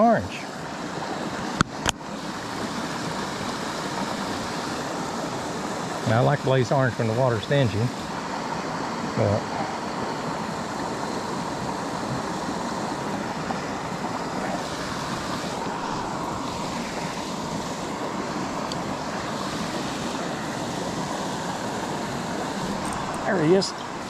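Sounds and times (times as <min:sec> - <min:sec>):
creek rushing over rocks: 0:00.0 - 0:24.0.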